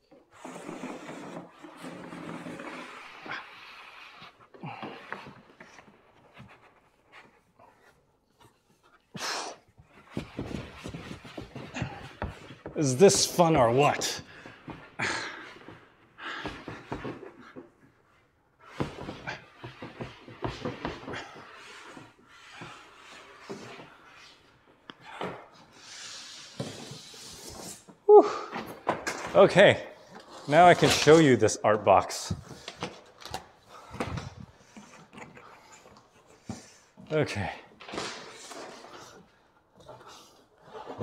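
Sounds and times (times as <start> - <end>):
man breathing hard: 14.4 - 17.3.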